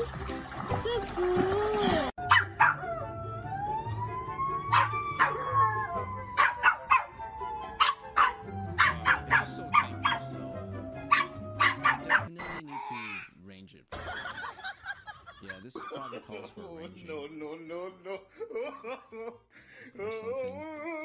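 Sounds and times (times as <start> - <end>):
small dog barking: 2.3 - 2.9, 4.7 - 5.4, 6.4 - 7.1, 7.8 - 10.3, 11.1 - 12.3
emergency siren wailing: 2.9 - 11.6.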